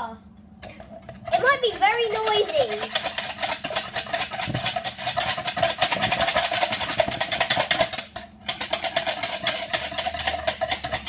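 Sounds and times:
whisk rattling in plastic jug: 0.6s - 11.0s.

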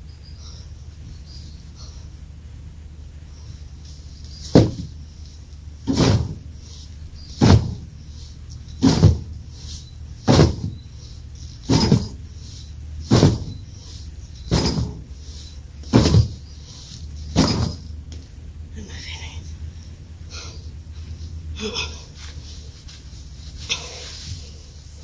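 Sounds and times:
battle ropes smacking: 4.5s - 5.0s, 5.9s - 6.5s, 7.4s - 7.9s, 8.8s - 9.4s, 10.2s - 10.8s, 11.6s - 12.2s, 13.0s - 13.7s, 14.4s - 15.1s, 15.8s - 16.4s, 17.3s - 17.9s.

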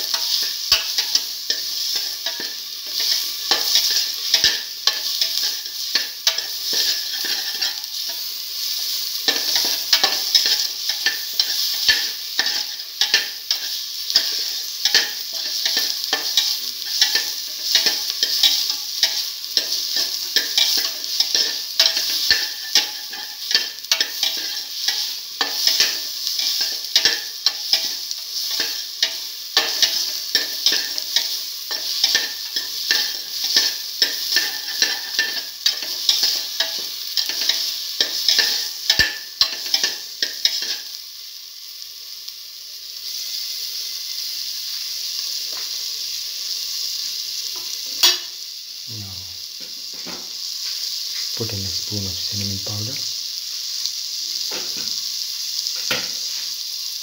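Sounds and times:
vegetables sizzling in oil: 0.0s - 57.0s
spoon scraping and knocking pot: 0.1s - 7.8s, 9.3s - 40.8s.

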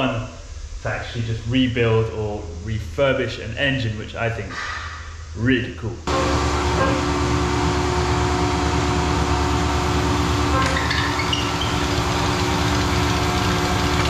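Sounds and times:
injection pump test bench running: 6.0s - 14.0s.

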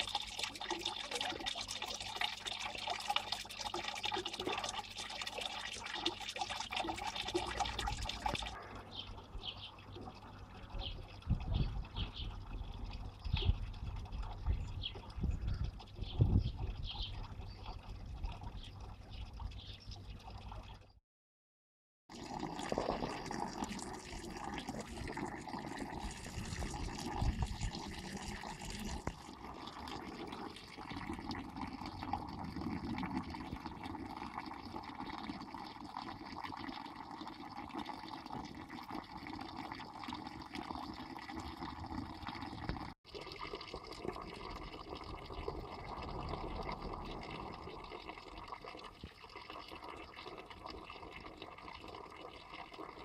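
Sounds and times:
fountain water splashing: 0.0s - 8.6s.

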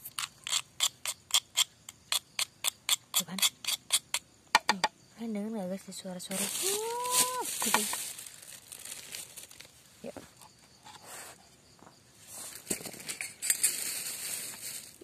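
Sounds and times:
person's voice: 5.2s - 8.0s
rustling and crinkling: 6.3s - 15.0s.

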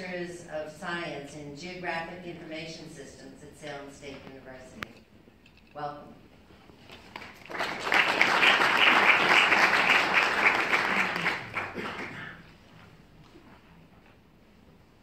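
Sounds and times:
audience applauding: 7.1s - 12.5s.

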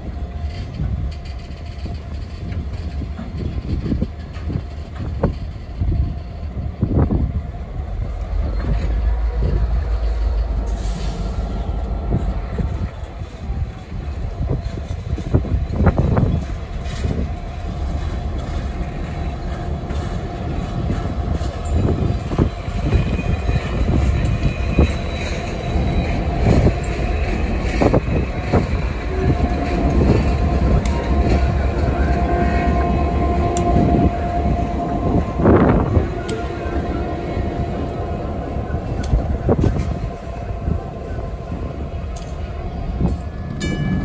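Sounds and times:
diesel locomotive rumbling: 0.0s - 44.0s
metallic wheel squeal: 8.0s - 41.3s.

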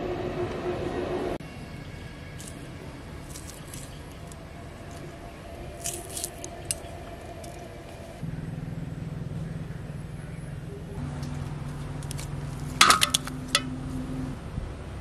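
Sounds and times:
low background hum: 0.0s - 15.0s
chillies being sliced: 5.8s - 6.9s.

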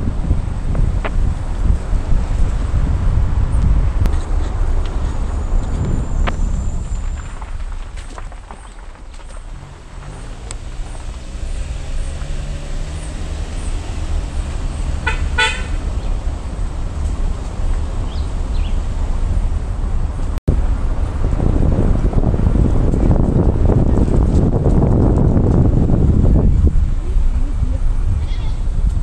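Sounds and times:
car engine and road rumble: 0.0s - 29.0s
car horn toot: 14.6s - 16.2s.

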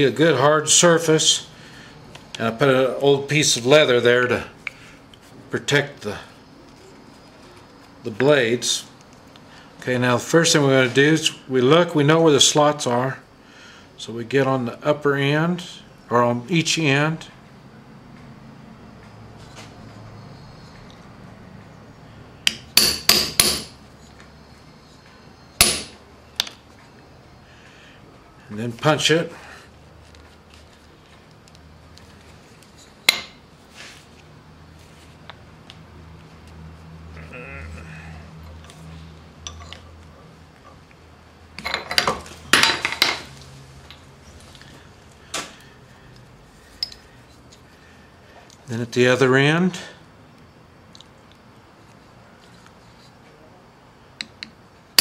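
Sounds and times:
hammer striking leather punch: 22.5s - 23.8s, 25.6s - 26.0s
metal tools clinking on vise: 39.4s - 40.0s, 41.6s - 43.2s, 46.8s - 47.0s.

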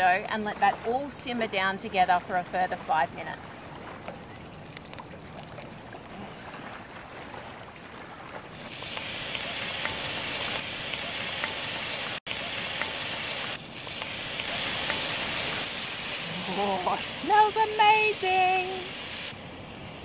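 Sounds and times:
pan sizzling with spattering: 8.6s - 19.3s
onion frying in oil: 8.6s - 19.4s.

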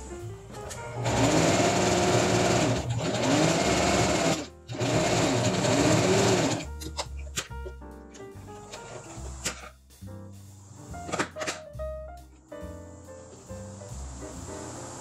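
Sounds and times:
electric sewing machine stitching: 0.9s - 6.7s.

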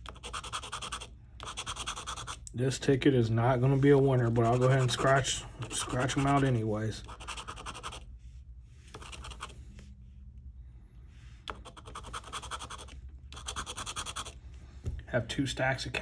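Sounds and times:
scratching lottery ticket: 0.0s - 2.4s, 3.6s - 8.1s, 8.9s - 9.6s, 11.5s - 14.4s.

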